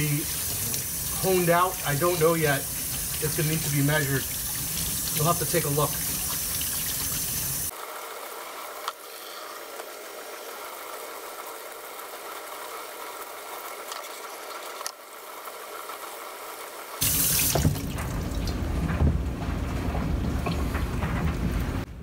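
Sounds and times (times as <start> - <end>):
tap water running and splashing: 0.0 - 7.7, 11.6 - 16.1, 17.0 - 21.6.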